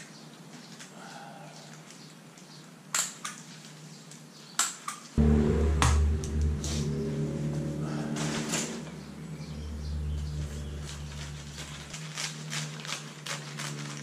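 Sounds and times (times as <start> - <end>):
steady low tones: 5.2 - 12.2
plastic tarp crinkling: 10.4 - 14.0.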